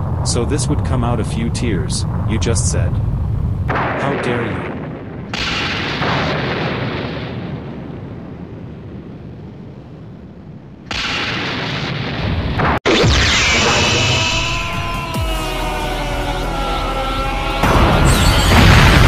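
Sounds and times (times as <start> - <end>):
rumbling explosion blast: 0.0 - 16.1, 17.6 - 19.0
rushing surge: 11.0 - 19.0.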